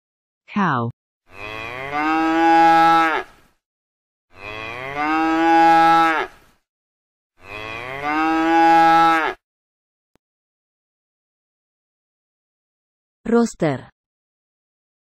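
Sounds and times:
cow mooing: 1.3 - 3.4, 4.3 - 6.4, 7.4 - 9.4.

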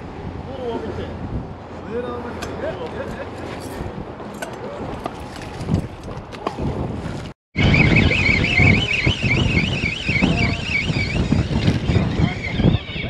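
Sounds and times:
wind rumble on microphone: 0.0 - 13.0
high warbling alarm tone: 7.6 - 13.0.

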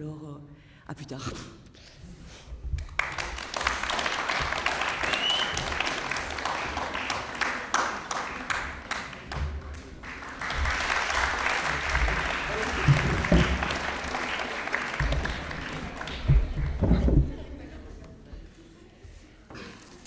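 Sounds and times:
audience applauding: 2.8 - 17.6.

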